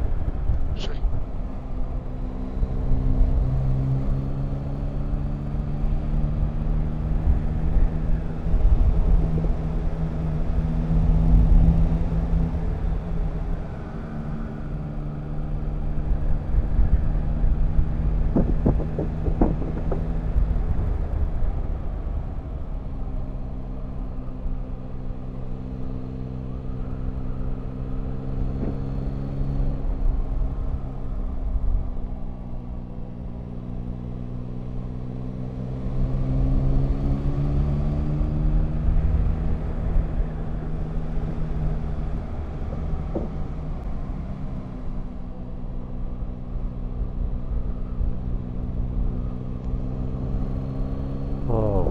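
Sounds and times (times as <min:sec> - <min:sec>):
low wind rumble: 0:00.0 - 0:26.0
motorcycle engine running: 0:18.0 - 0:20.6.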